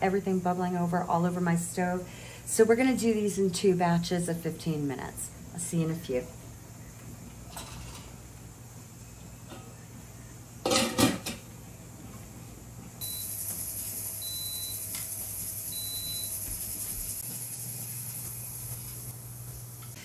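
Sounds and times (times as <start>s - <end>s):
appliance beeps: 13.0s - 16.9s
steady high hiss: 13.0s - 20.0s.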